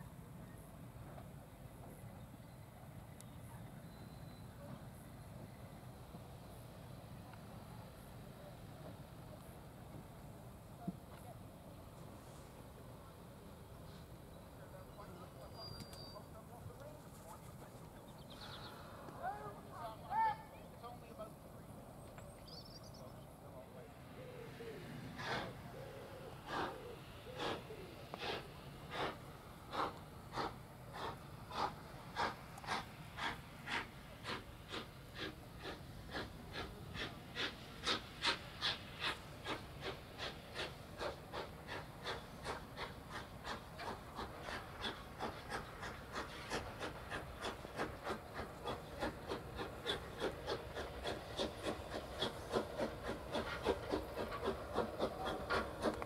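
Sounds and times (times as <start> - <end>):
steam locomotive chuffing: 24.0 - 56.0.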